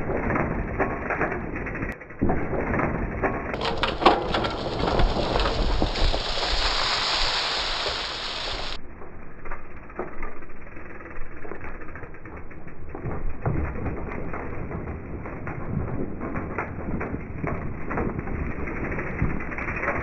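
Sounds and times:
bike tyres skidding through dirt: 0:00.0 - 0:08.8
tyres rumbling on dirt trail: 0:00.0 - 0:20.0.

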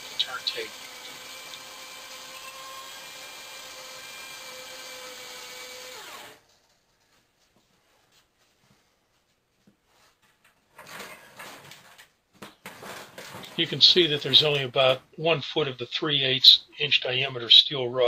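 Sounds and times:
electric drill whining: 0:00.0 - 0:06.5.

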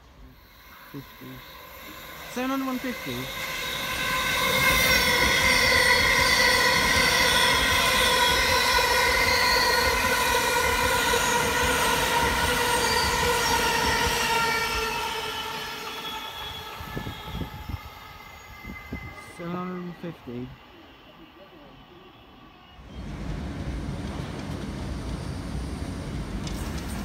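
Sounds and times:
train wheel rumble: 0:22.9 - 0:27.0.

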